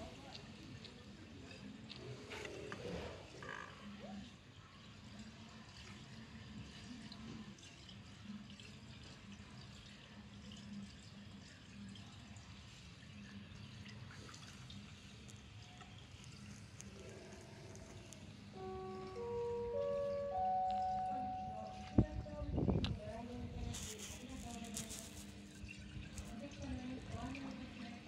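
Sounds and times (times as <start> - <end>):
water drips and laps: 0.0 - 28.0
low steady hum: 16.3 - 28.0.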